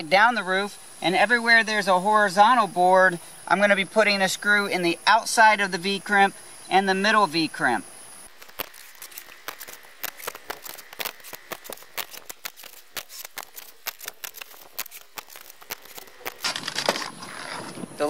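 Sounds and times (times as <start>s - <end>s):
rustling noise: 8.3s - 18.0s.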